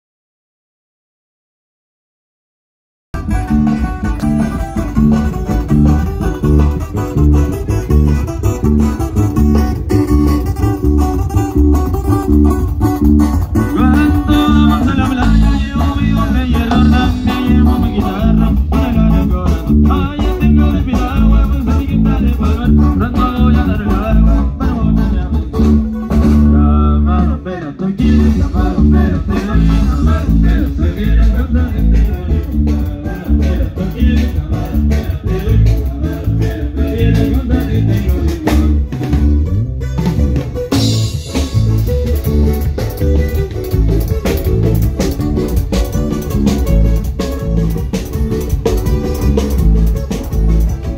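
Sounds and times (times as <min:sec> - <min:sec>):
heavy bass line: 0:03.2 - 0:50.9
plucked guitars: 0:03.2 - 0:50.9.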